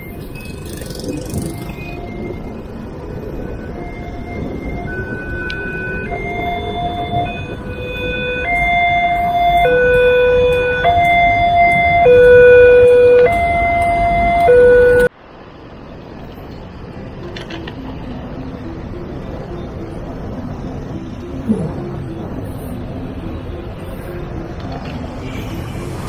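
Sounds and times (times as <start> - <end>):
street traffic noise: 0.0 - 26.0
level crossing two-tone alarm: 1.6 - 15.1.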